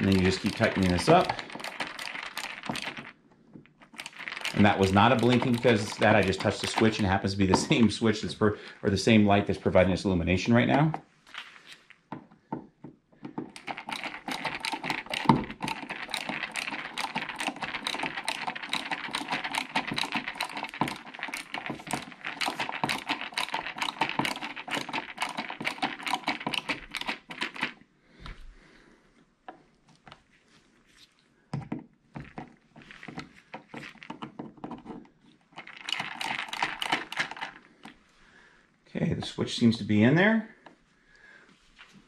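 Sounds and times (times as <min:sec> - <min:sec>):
ratcheting screwdriver clicking: 0:00.0 - 0:03.1, 0:03.9 - 0:07.8, 0:13.5 - 0:27.6.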